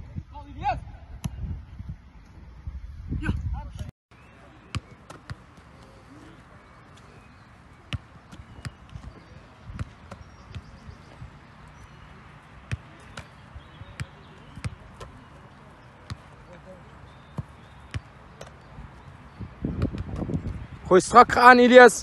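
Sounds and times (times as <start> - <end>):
footballs kicked and caught: 4.7 - 6.0, 7.8 - 11.3, 12.6 - 15.3, 16.0 - 18.7, 19.7 - 20.7.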